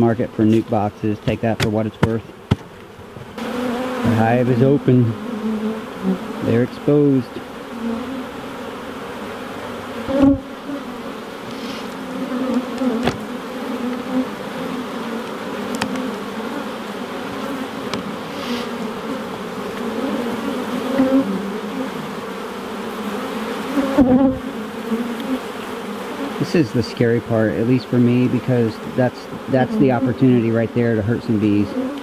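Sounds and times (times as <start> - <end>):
honey bees buzzing: 0.0 - 32.0
hive tool knocking: 0.5 - 3.6, 12.5 - 13.3, 15.2 - 16.1, 17.8 - 18.1.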